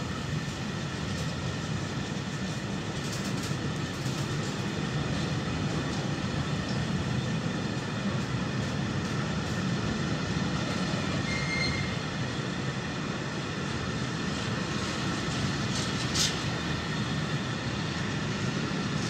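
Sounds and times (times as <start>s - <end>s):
train wheels on rails: 0.0s - 19.0s
faint high squeal: 11.2s - 12.0s.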